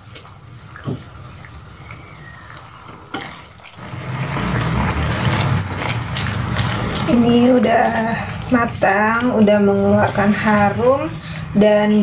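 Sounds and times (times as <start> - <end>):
sauce bubbling and sizzling: 0.0 - 12.0
spatula stirring sauce: 0.8 - 11.7.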